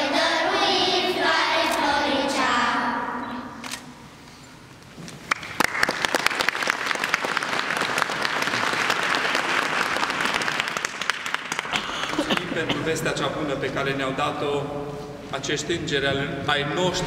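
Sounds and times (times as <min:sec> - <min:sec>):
audience clapping: 0:05.2 - 0:12.5.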